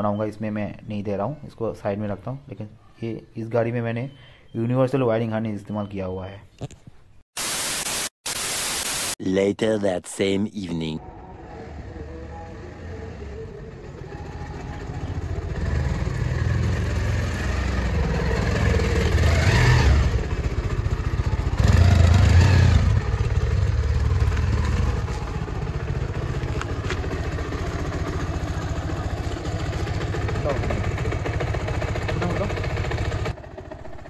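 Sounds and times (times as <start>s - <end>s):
motorcycle engine running: 11.4s - 34.0s.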